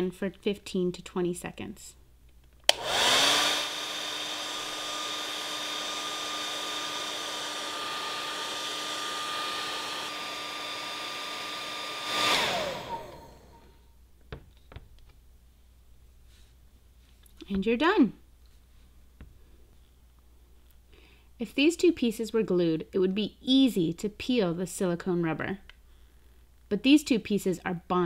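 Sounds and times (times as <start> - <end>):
hair dryer switch click: 2.6 - 3.0
hair dryer motor blowing: 2.7 - 13.8.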